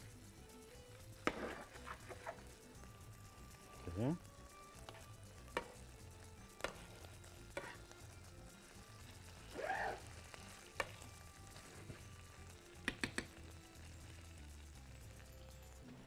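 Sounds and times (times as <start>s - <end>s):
faint sizzling: 0.0s - 16.0s
spoon stirring in frying pan: 1.0s - 3.8s, 4.4s - 13.5s.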